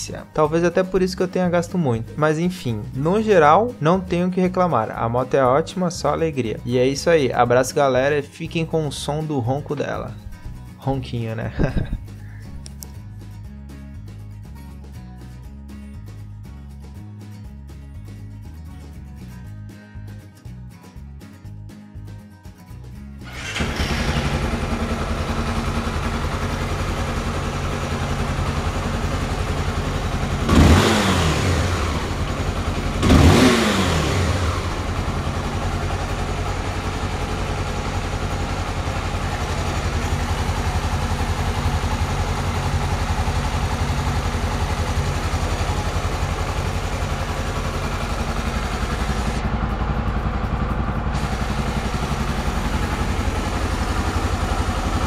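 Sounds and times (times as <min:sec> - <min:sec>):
motorcycle engine idling and revving: 0:23.2 - 0:55.0.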